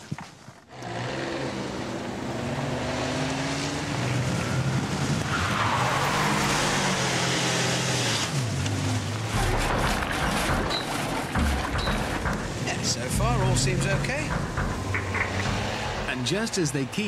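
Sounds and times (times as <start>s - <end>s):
van engine accelerating hard: 0.7s - 5.3s
tyres skidding on wet tarmac: 0.7s - 17.0s.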